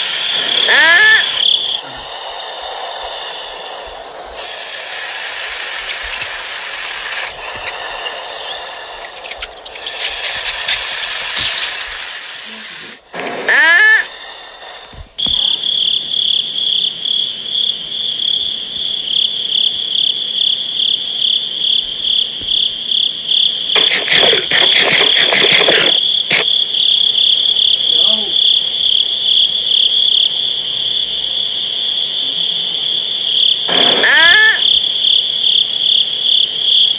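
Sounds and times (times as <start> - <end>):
hissing noise: 0.0 - 15.6, 23.8 - 26.4
crickets chirping: 0.0 - 36.9.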